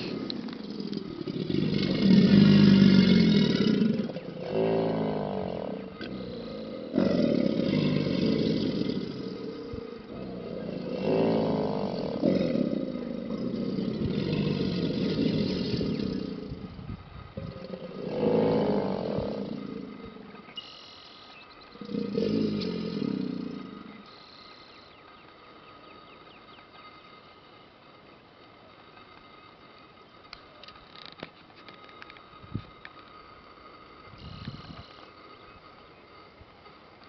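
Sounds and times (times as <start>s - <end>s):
alligators bellowing: 0.0s - 28.0s.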